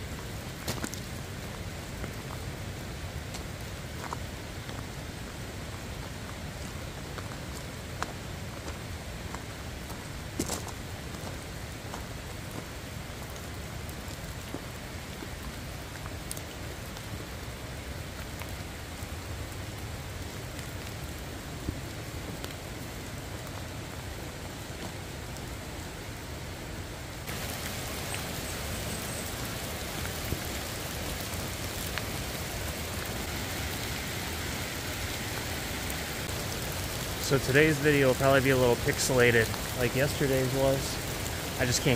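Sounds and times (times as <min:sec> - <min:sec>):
rain hissing on trees: 0:00.0 - 0:41.9
raindrops tapping close by: 0:27.2 - 0:41.9.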